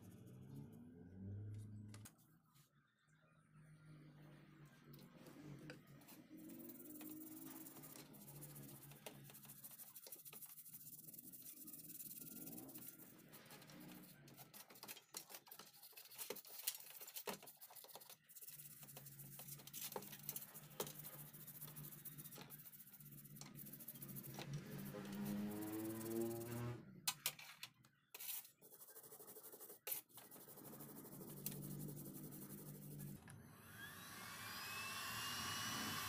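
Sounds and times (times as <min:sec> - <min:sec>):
toothbrush scratching metal: 0:05.9 - 0:27.5, 0:28.1 - 0:33.2.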